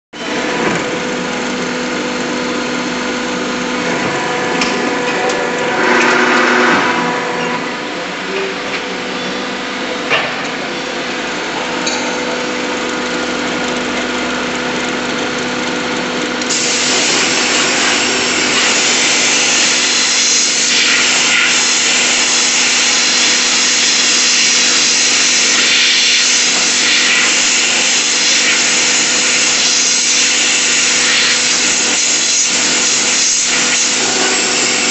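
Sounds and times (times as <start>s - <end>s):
machine humming and running: 0.2s - 34.9s
loud steady hiss: 16.5s - 34.9s.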